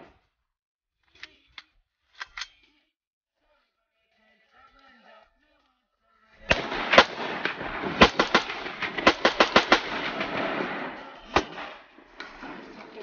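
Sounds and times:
rifle gunfire: 6.5 - 13.0.

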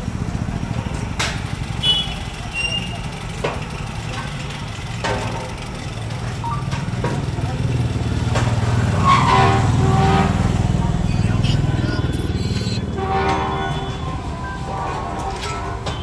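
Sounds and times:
motorcycle engine passing by: 5.6 - 14.3.

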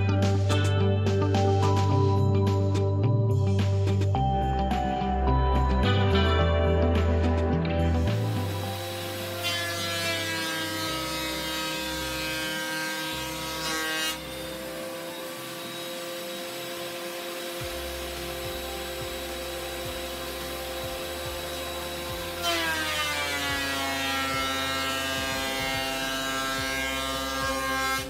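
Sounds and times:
thickness planer motor whine: 7.9 - 28.0
board going through planer cutter: 8.0 - 28.0.

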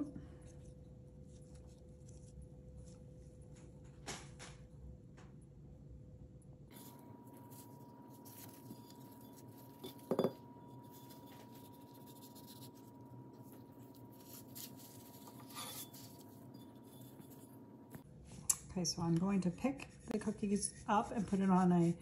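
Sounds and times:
faint steady hum: 0.0 - 22.0
soft handling noise: 6.7 - 18.5.

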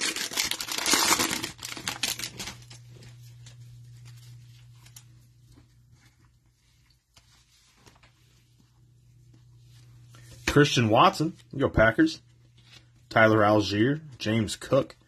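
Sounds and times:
plastic wrapper crinkling and tearing: 0.0 - 5.1
low steady hum: 0.0 - 15.0.

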